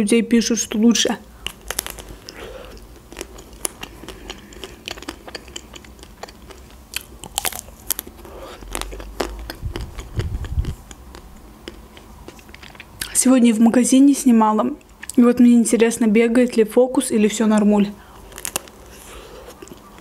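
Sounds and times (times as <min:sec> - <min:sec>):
chocolate shell crackling: 0:01.4 - 0:11.0, 0:18.1 - 0:20.0
biting and chewing ice cream bar: 0:01.4 - 0:13.2, 0:18.1 - 0:20.0.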